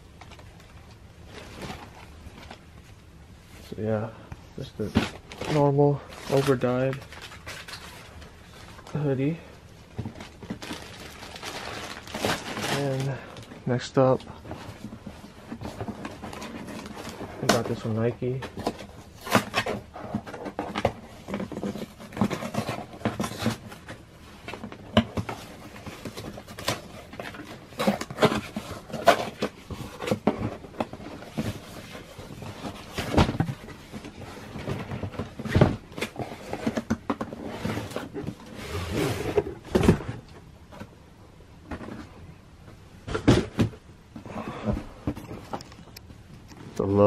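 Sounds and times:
cardboard box scraping and rustling: 25.1s - 40.2s
shoebox sliding out: 35.4s - 40.2s
box thumping: 43.0s - 43.8s.

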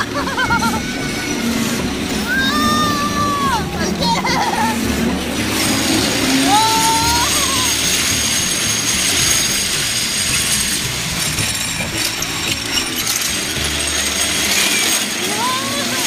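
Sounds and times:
metal roller slide rattling: 0.0s - 16.0s.

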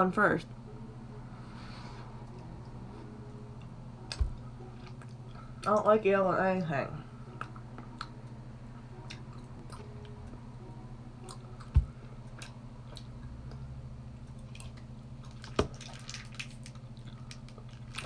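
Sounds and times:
person chewing: 4.0s - 5.6s, 7.3s - 10.2s, 11.2s - 18.0s.

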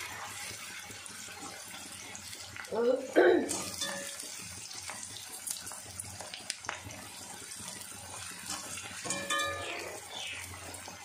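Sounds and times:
onions sizzling in oil: 0.0s - 11.0s
skimmer scraping and tapping pan: 3.5s - 5.1s, 8.1s - 11.0s.

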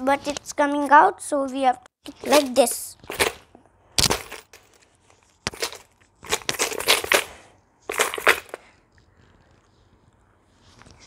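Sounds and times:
coins rattling in shaken bank: 3.0s - 3.4s, 4.0s - 4.8s, 5.4s - 8.6s.

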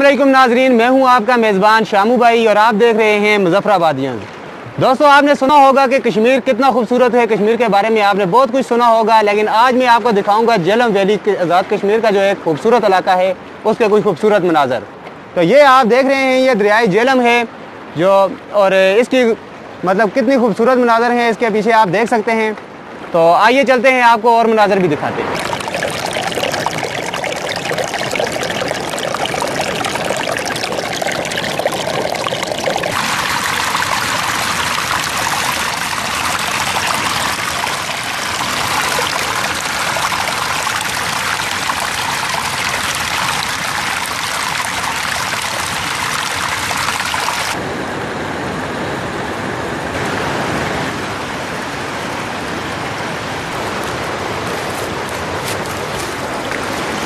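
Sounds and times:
river rushing: 16.6s - 57.0s
water splashing over rocks: 25.0s - 47.6s, 54.8s - 57.0s.

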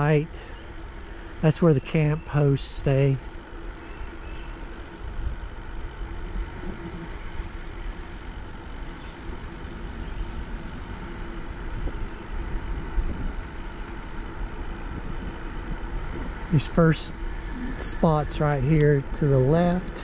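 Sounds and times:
faint steady hum: 0.0s - 20.0s
wind buffeting microphone: 4.5s - 20.0s.

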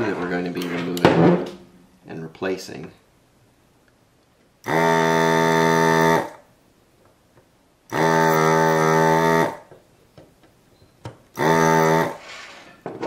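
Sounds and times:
desoldering pump buzzing: 4.6s - 6.5s, 7.9s - 9.8s, 11.0s - 12.2s.

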